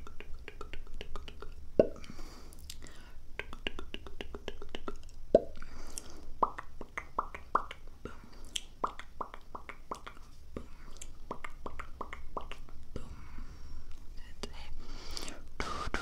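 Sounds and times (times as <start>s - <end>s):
tongue and lip clicks: 0.0s - 12.8s
mouth pop: 1.8s - 2.0s.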